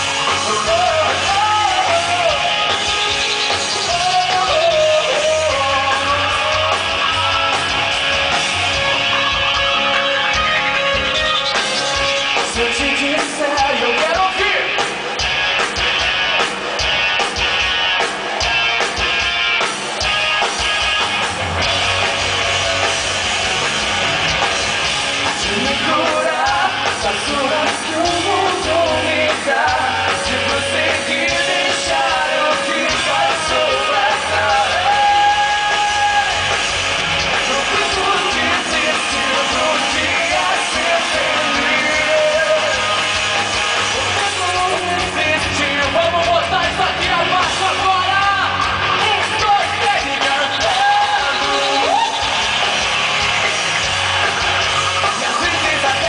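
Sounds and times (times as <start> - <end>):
rock band playing live: 0.0 - 56.0
person singing: 25.4 - 36.4, 37.4 - 43.1.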